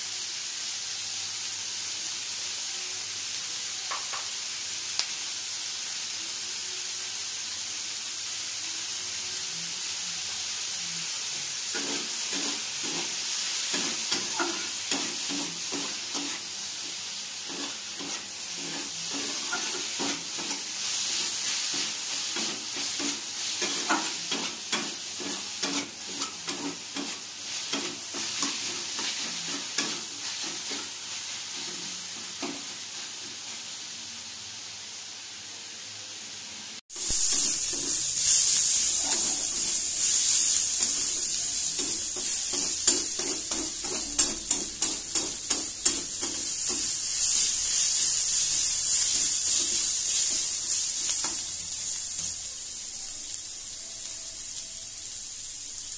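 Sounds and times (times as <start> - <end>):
vegetables sizzling in oil: 0.0 - 55.9
metal spatula scraping and clacking: 17.5 - 20.6, 21.6 - 31.0, 40.7 - 48.0.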